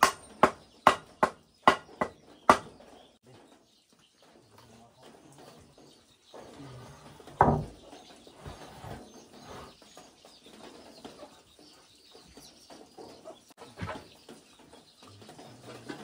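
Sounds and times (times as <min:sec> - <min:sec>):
wood scraping: 0:06.3 - 0:10.0
wooden plank knocking on bench: 0:07.4 - 0:07.8.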